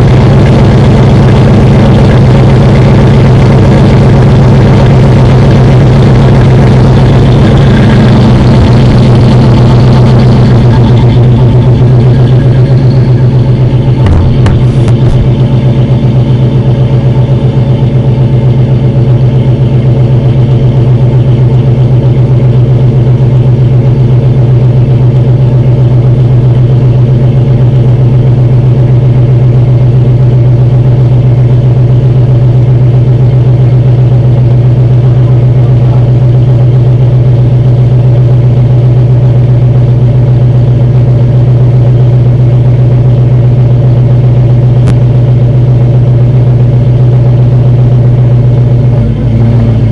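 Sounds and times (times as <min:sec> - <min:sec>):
car engine idling loud: 0:00.0 - 0:49.9.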